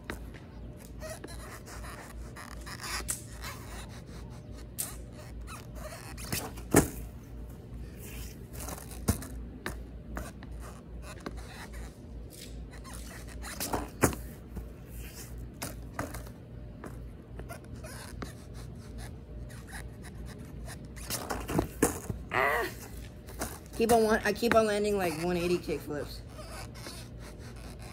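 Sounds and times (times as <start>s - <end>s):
shoes scraping on grip tape: 0.0s - 27.9s
shoes landing: 5.9s - 17.5s, 21.0s - 25.0s.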